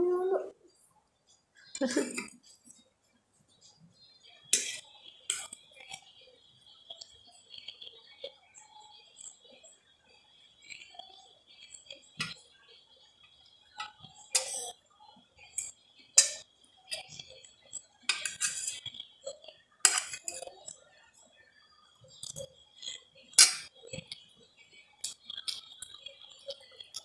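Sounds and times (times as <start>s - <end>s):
metal spoon clinking on plates: 15.6s - 17.2s, 18.1s - 18.8s, 19.8s - 20.5s, 23.4s - 23.7s.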